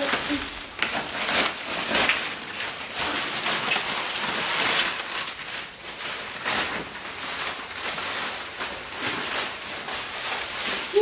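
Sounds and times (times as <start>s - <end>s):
plastic stretch wrap crinkling: 0.0s - 11.0s.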